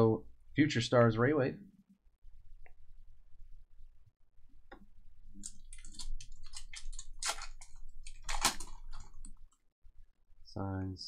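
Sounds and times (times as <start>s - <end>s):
foil wrapper crinkling and tearing: 5.8s - 9.2s.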